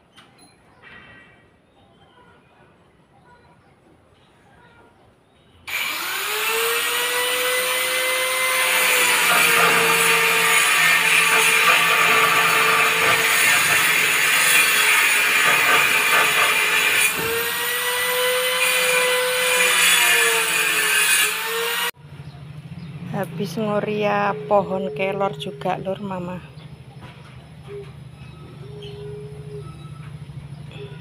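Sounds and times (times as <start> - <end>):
electric planer shaving wood: 5.7 - 22.0.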